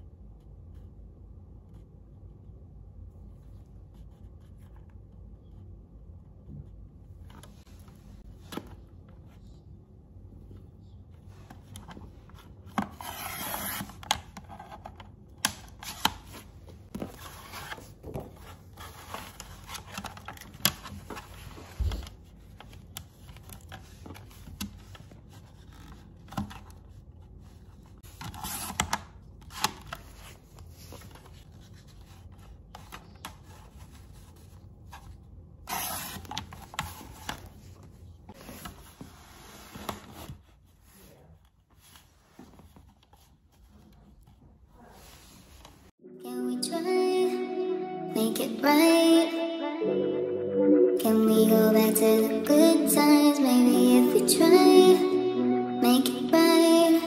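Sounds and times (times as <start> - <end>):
paper rustling and sliding: 15.8 - 28.8, 29.5 - 41.0.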